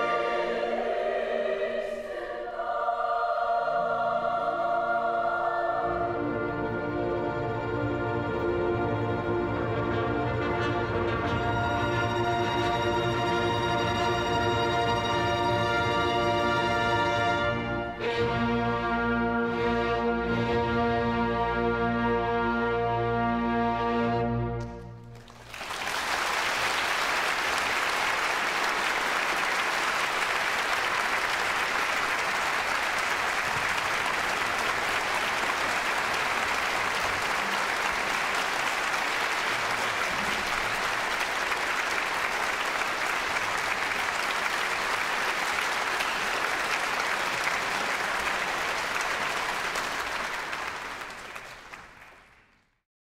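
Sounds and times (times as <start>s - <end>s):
audience applauding: 24.6s - 52.8s.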